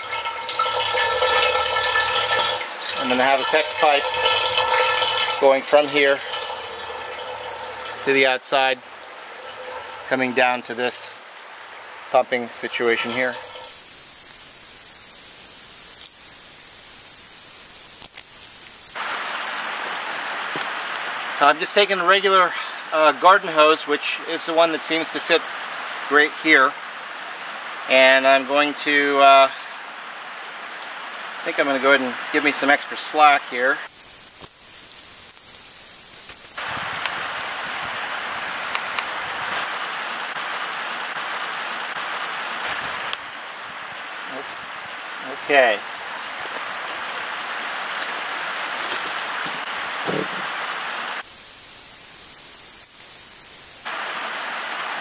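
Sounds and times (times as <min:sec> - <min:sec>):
water rushing: 0:00.0 - 0:22.4
stream water running: 0:00.0 - 0:55.0.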